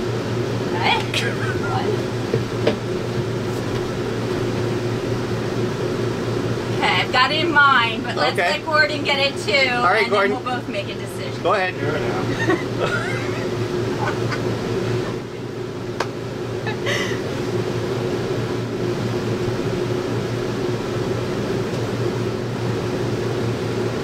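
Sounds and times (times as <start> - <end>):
fan humming: 0.0 - 24.0.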